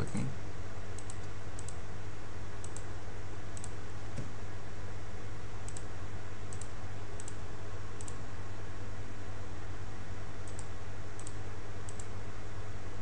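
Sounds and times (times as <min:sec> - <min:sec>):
low hum and hiss: 0:00.0 - 0:13.0.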